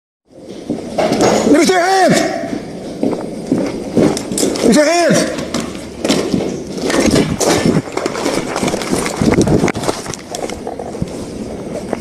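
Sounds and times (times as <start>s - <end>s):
quick running footsteps: 2.4s - 10.7s
gear rustling against microphone: 2.8s - 12.0s.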